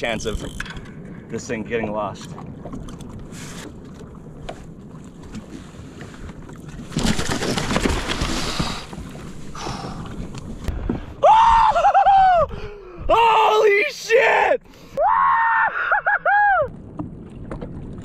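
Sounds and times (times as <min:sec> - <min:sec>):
wind and water noise: 0:00.0 - 0:18.0
fish thrashing and splashing: 0:06.6 - 0:10.2
man yelling excitedly: 0:13.1 - 0:15.5.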